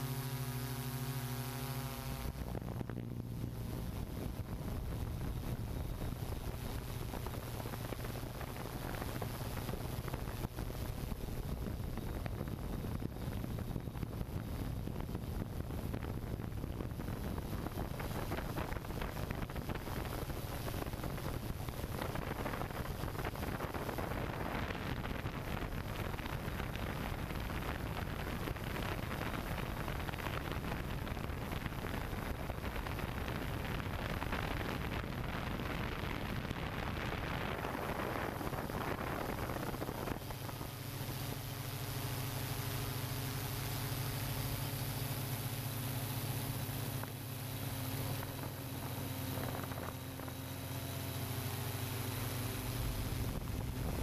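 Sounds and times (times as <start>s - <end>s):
drone rotors humming: 0.0s - 54.0s
low drone: 0.0s - 54.0s
wind on microphone: 0.0s - 54.0s.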